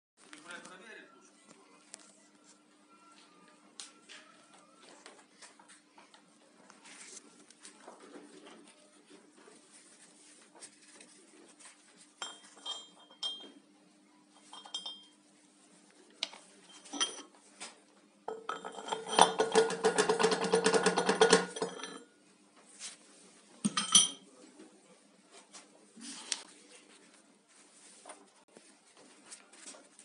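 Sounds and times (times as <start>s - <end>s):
steel parts clinking and scraping: 12.2s - 13.5s, 16.7s - 17.3s, 18.3s - 22.0s.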